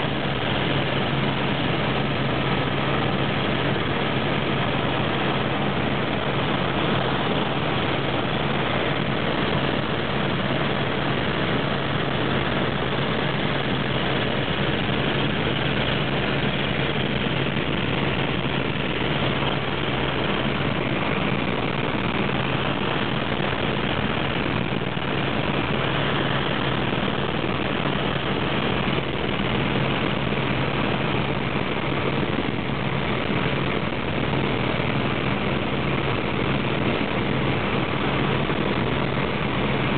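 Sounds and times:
helicopter engine and rotor drone: 0.0 - 39.9
steady low hum: 0.0 - 39.9.

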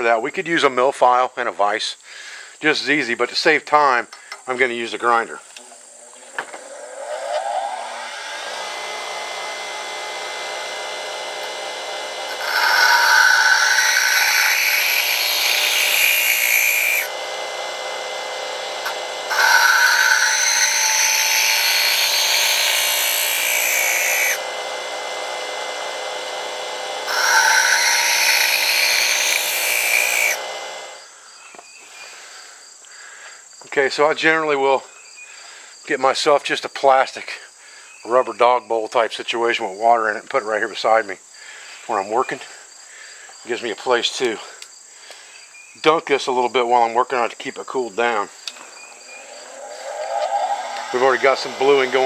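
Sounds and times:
bench grinder running: 6.8 - 31.0, 49.4 - 52.0
metal grinding on wheel: 12.2 - 17.2, 18.8 - 24.5, 27.0 - 30.4, 49.0 - 52.0.

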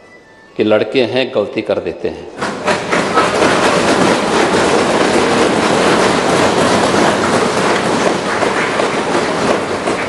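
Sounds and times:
people thumping desks in applause: 2.4 - 10.0.

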